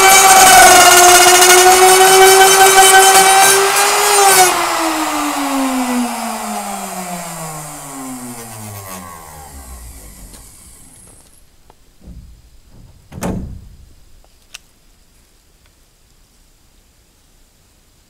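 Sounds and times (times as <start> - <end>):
power tool motor winding down: 0.0 - 11.4.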